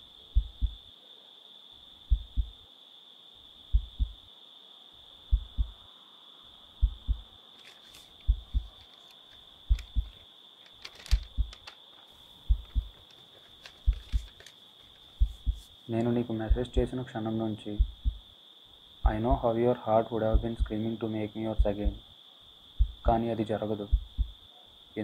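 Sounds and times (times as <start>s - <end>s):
heartbeat thumps: 0.4s - 0.9s, 2.1s - 2.6s, 3.7s - 4.2s, 5.3s - 5.8s, 6.8s - 7.4s, 8.2s - 8.8s, 9.7s - 10.2s, 11.1s - 11.6s, 12.4s - 13.0s, 13.8s - 14.3s, 15.2s - 15.7s, 16.5s - 17.0s, 17.8s - 18.3s, 19.0s - 19.5s, 20.3s - 20.8s, 21.6s - 22.0s, 22.8s - 23.2s, 23.9s - 24.4s
light rustling and clicks: 7.6s - 16.1s.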